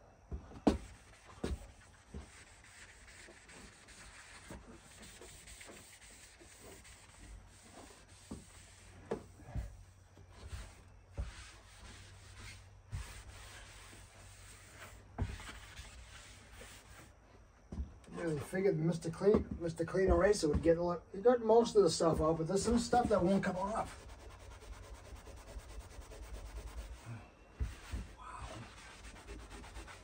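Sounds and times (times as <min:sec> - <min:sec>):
eraser rubbing on door: 0:00.7 - 0:17.1, 0:22.6 - 0:30.0.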